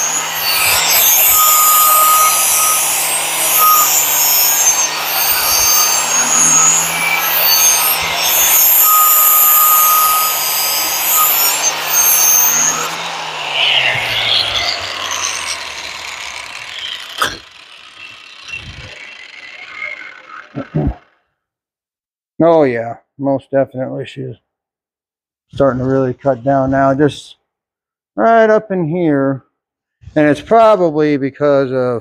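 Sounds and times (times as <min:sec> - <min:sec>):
angle grinder grinding steel: 0:00.0 - 0:21.2
grinder motor winding down: 0:00.0 - 0:21.2.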